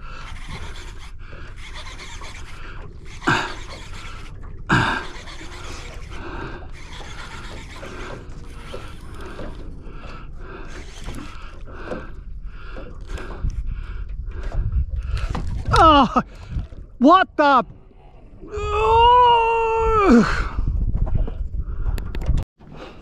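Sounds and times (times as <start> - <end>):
steady low rumble: 11.6 - 15.2.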